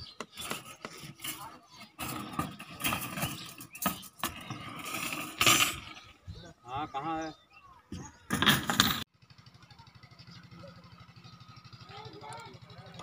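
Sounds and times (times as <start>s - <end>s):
knocks and clatters: 0.1s - 6.0s, 7.9s - 9.1s
workers talking: 0.2s - 8.7s, 9.5s - 13.0s.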